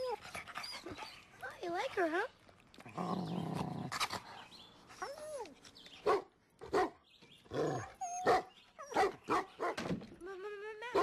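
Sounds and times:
dog barking: 0:08.2 - 0:09.8.

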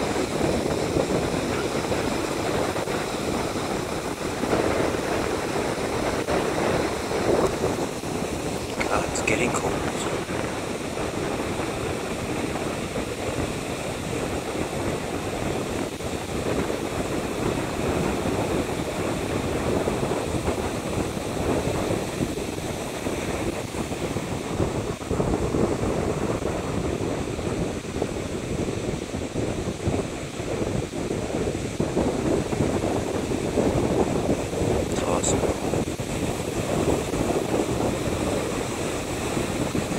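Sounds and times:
ocean surf roaring: 0:00.0 - 0:39.9
wind buffeting microphone: 0:00.0 - 0:39.9.

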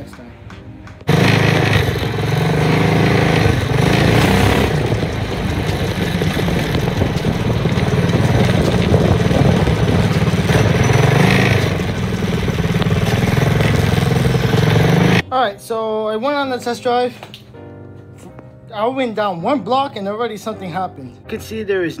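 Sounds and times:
go-kart engine running: 0:01.0 - 0:15.2.

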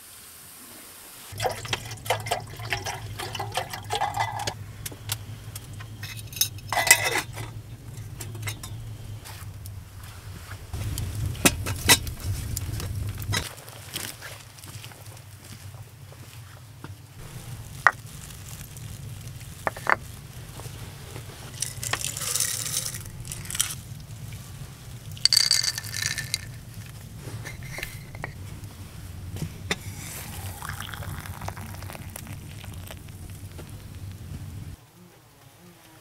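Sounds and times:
steady low rumble: 0:01.3 - 0:13.5, 0:14.9 - 0:34.8
dry grains rattling into bowl: 0:21.5 - 0:24.0, 0:25.1 - 0:28.4
wooden bowls knocking on stone: 0:25.3 - 0:26.6.

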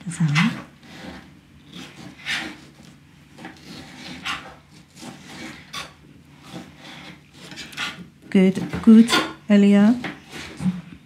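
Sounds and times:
knife cutting peppers on mat: 0:00.2 - 0:10.9.

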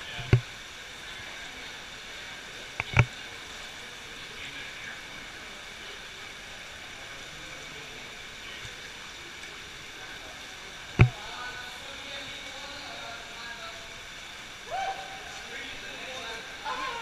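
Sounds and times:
stream flowing through a cave: 0:00.0 - 0:17.0.

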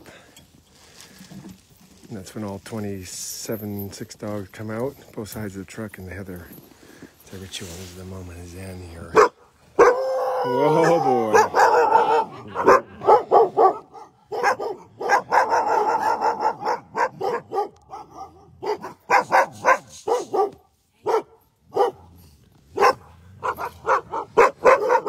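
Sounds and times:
dogs barking and yipping: 0:09.1 - 0:25.0.

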